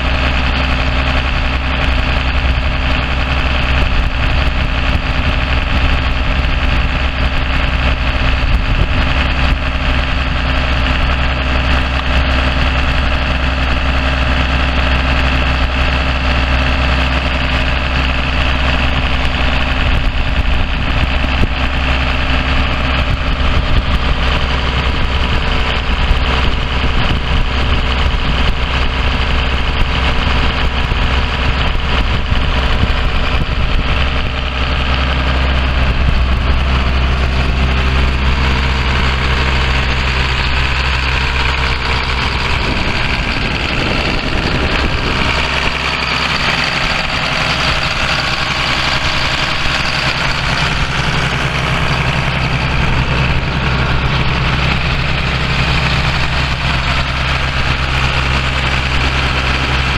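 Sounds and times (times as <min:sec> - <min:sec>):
diesel tractor engine idling: 0:00.0 - 0:59.9.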